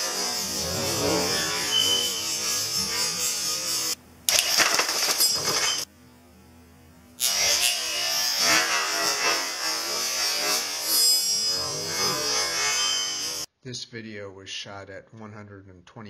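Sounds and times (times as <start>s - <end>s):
electric motor whirring: 0.4s - 3.8s.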